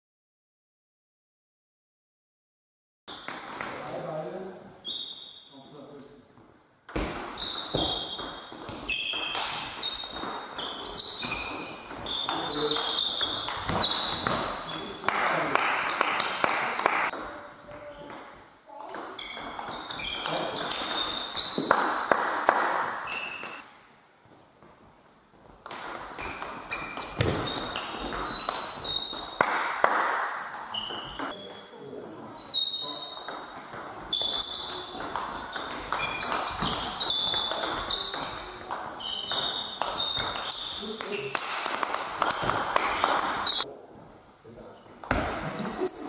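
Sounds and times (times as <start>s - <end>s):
sneaker squeaks on floor: 3.1s - 4.0s, 4.8s - 5.8s, 7.0s - 15.0s, 17.3s - 22.0s, 22.9s - 23.7s, 25.6s - 29.5s, 30.4s - 43.7s, 45.0s - 46.0s.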